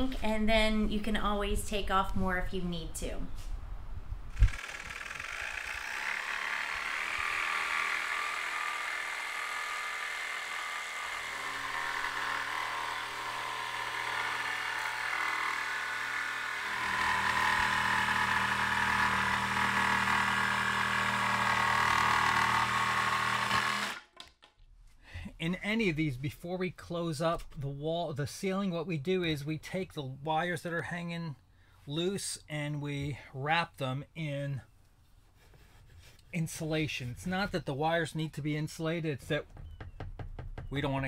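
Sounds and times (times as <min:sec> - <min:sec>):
jigsaw cutting wood: 0:04.3 - 0:24.1.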